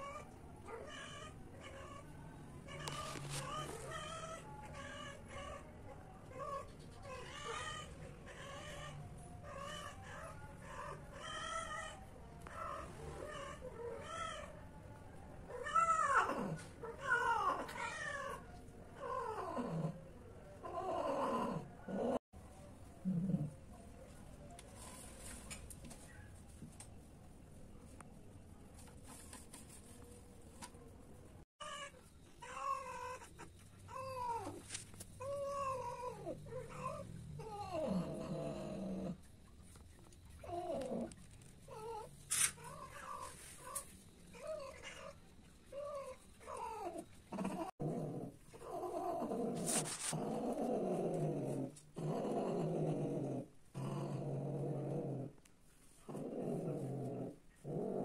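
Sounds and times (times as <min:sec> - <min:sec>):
cats caterwauling: 0:00.0 - 0:14.6, 0:15.5 - 0:20.0, 0:31.6 - 0:39.2, 0:40.4 - 0:54.3.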